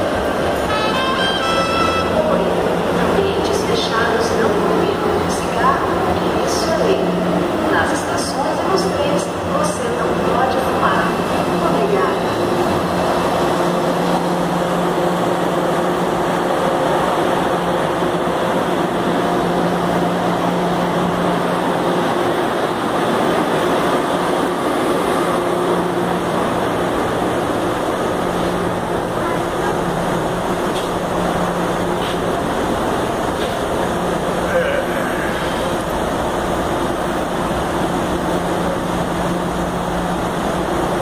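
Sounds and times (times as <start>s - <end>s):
train equipment low drone: 0.0s - 41.0s.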